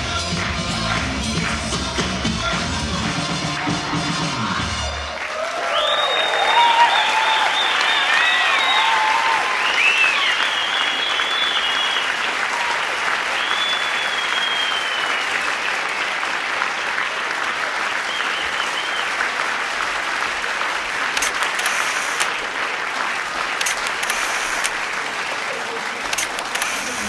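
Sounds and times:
audience applauding: 0.0 - 27.0
crowd whistling: 3.2 - 15.7, 18.0 - 19.3, 26.2 - 27.0.

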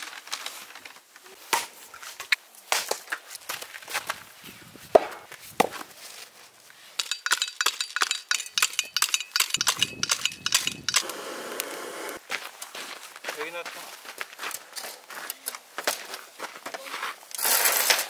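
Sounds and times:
gas torch hissing: 10.9 - 12.2
shovel scraping sandy soil: 17.0 - 18.0.

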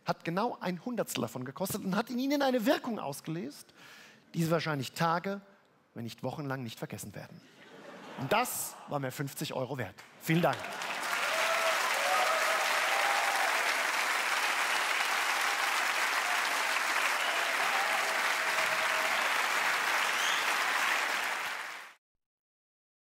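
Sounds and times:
audience applauding: 10.3 - 22.0.

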